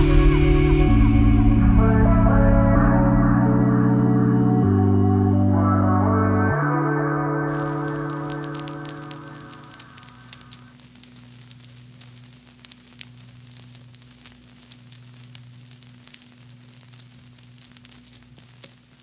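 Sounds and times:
static crackle and clicks: 0.0s - 3.2s, 7.5s - 19.0s
low hum: 0.0s - 11.6s
music: 0.0s - 19.0s.

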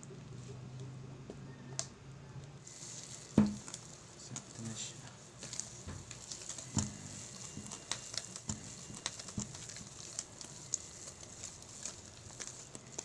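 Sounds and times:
whisk clicking in metal bowl: 5.4s - 13.0s.

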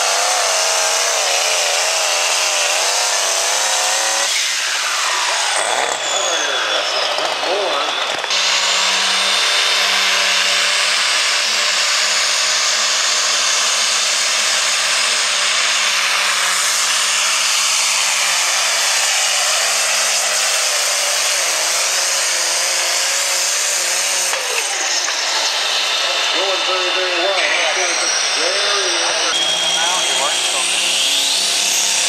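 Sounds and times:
diesel engine roaring under load: 22.9s - 32.0s.

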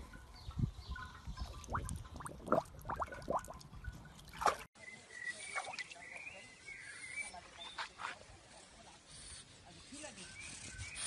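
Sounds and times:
dog lapping water: 1.5s - 3.6s.

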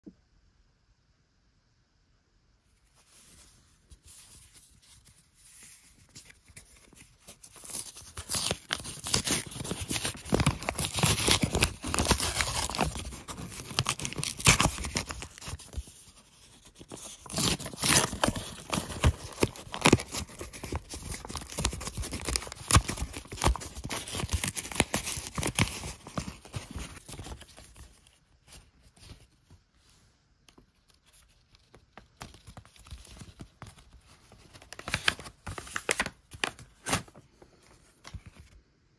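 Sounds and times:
paper envelope tearing: 6.2s - 27.8s, 34.6s - 37.2s.

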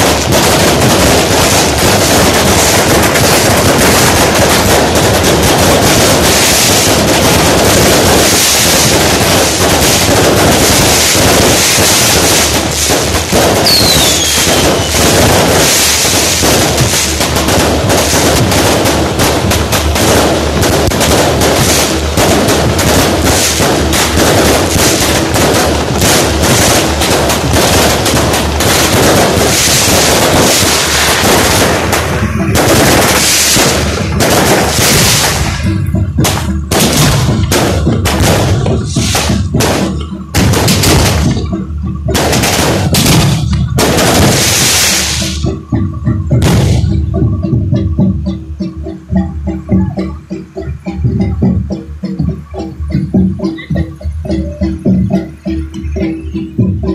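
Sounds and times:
fireworks crackling and banging: 0.0s - 56.9s
falling firework whistle: 10.0s - 17.2s.

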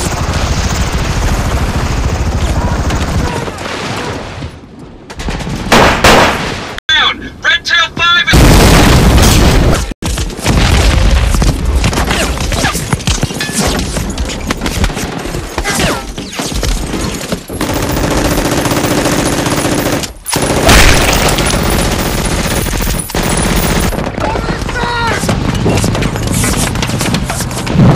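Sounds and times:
machine-gun and rifle fire: 16.8s - 27.9s.

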